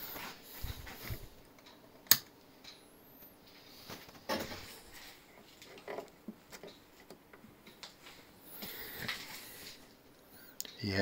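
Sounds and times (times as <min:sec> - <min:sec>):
knocks and rustles of wires: 0:03.8 - 0:09.8.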